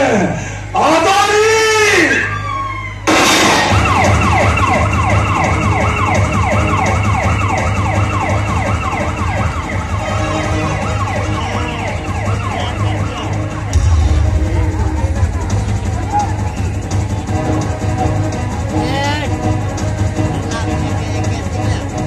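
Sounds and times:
siren wail over loudspeaker: 1.4s - 15.1s
loud music with heavy bass: 3.1s - 22.0s.

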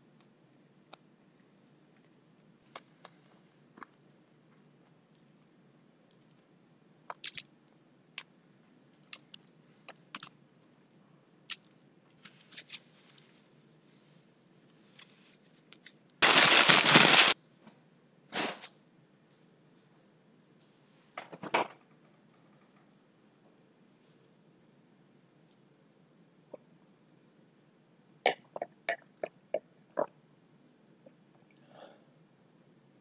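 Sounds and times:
paper crumpling and crinkling: 14.8s - 17.4s, 18.4s - 18.7s.

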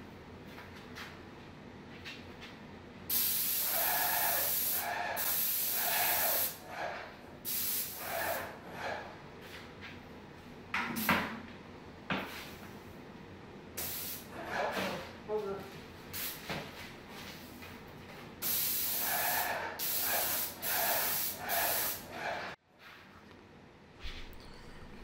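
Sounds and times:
paint sprayer hissing: 3.1s - 6.6s, 7.5s - 8.5s, 13.8s - 14.3s, 18.4s - 22.1s.

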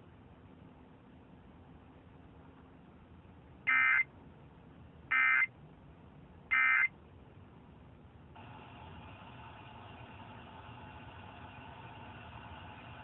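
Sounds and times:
faint radio hiss: 0.0s - 13.0s
harsh digital data tone bursts: 3.7s - 4.0s, 5.1s - 5.5s, 6.5s - 6.9s.

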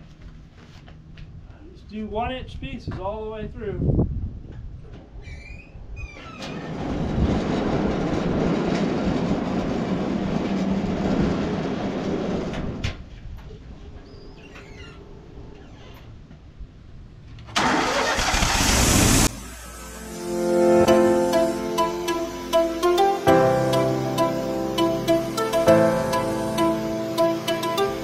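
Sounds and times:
short loud hiss: 17.6s - 27.8s
band sawmill running: 17.8s - 28.0s.

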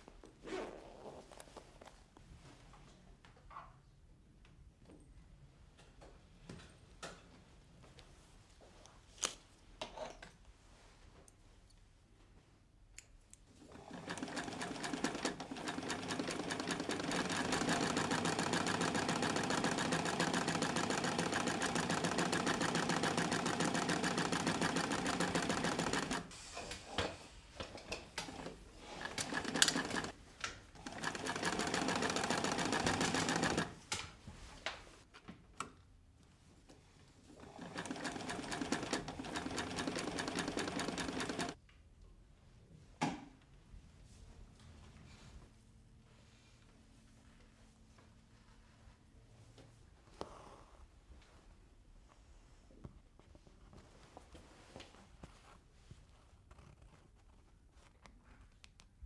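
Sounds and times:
sewing machine stitching: 13.6s - 26.4s, 27.8s - 33.8s, 37.3s - 41.6s.

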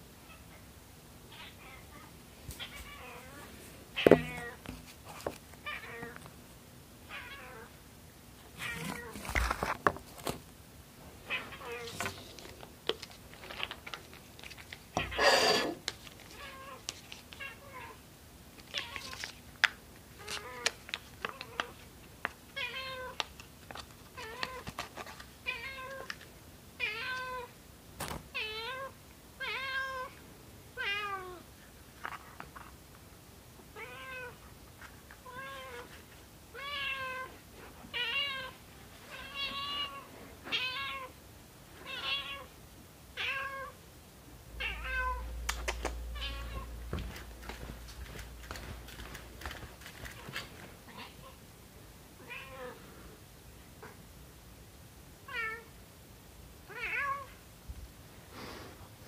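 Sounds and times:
cat meowing: 15.0s - 15.7s, 44.6s - 46.8s.

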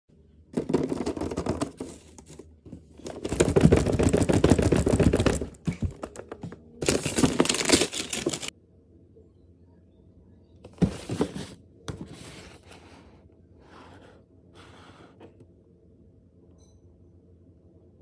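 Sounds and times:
wrapping paper crinkling and tearing: 6.8s - 8.5s.

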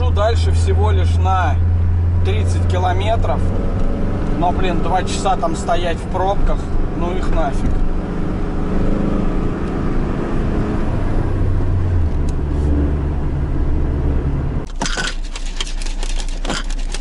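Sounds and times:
van engine and road hum: 0.0s - 17.0s.

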